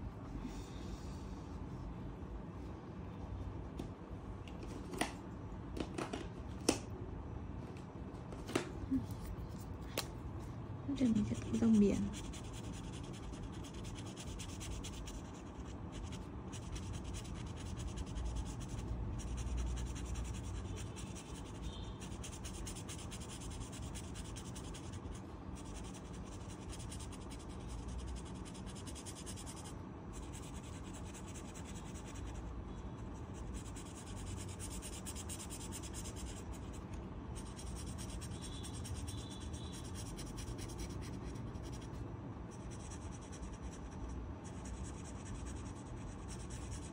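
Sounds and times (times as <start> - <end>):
oil pastel scratching on paper: 11.0 - 46.9.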